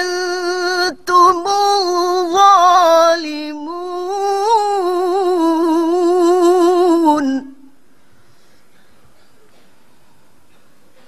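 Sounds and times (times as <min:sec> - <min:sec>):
woman reciting in melodic chant: 0:00.0 - 0:07.8.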